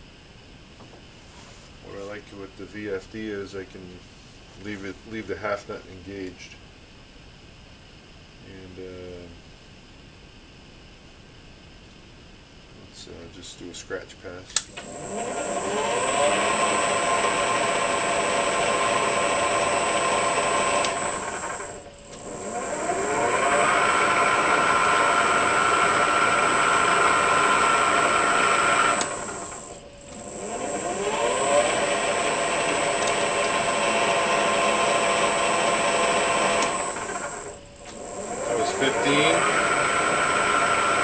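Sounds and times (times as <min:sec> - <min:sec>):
lathe motor whining: 0:14.6 - 0:41.0.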